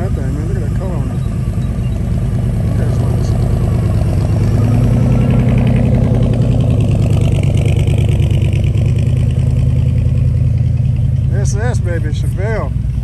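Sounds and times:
car engine running: 0:00.0 - 0:13.0.

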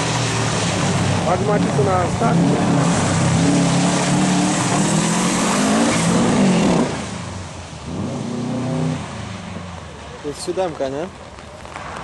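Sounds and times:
distant rally car engine revving: 0:00.0 - 0:09.3
rally car engine revving: 0:00.0 - 0:09.4.

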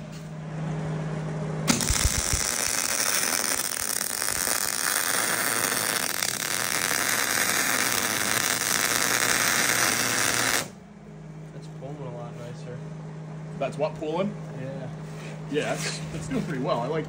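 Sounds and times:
steady low hum: 0:00.0 - 0:17.0
welding arc crackling: 0:01.7 - 0:10.8.

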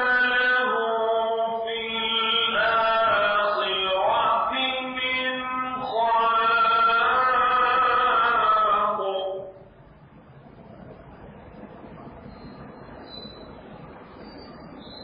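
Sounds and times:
person chanting recitation: 0:00.0 - 0:09.6.

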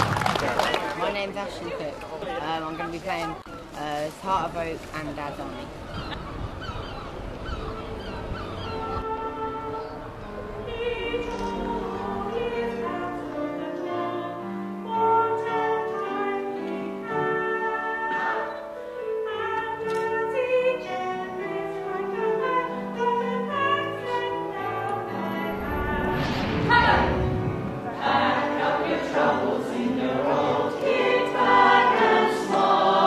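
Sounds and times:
women singing operatic harmony: 0:08.6 - 0:33.0.

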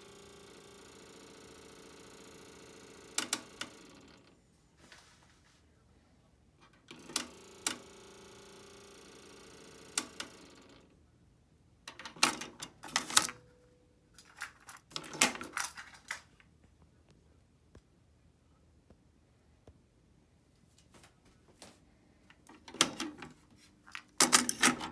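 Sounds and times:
rapid mechanical clicking: 0:00.0 - 0:04.2, 0:06.9 - 0:10.7
tape deck motor whirring: 0:00.0 - 0:04.3, 0:06.9 - 0:10.8.

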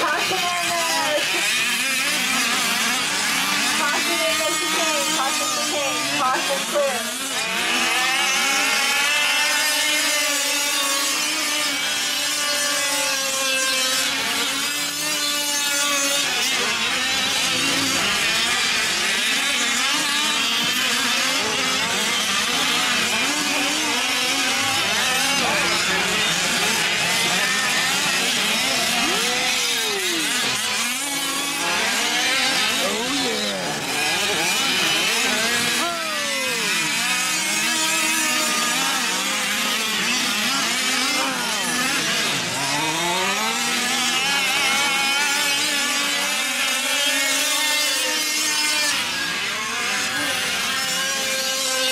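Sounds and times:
small two-stroke engines revving: 0:00.0 - 0:51.9.

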